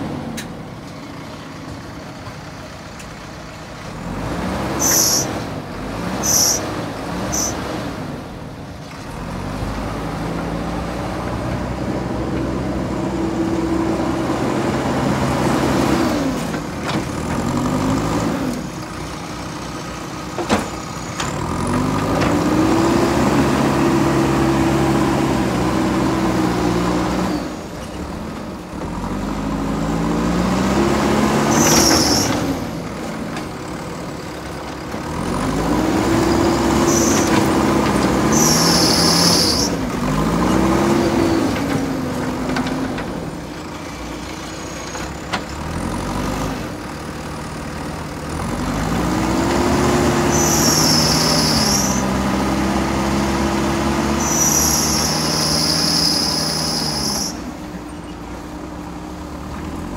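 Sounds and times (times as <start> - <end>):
diesel engine revving: 0.0 - 59.9.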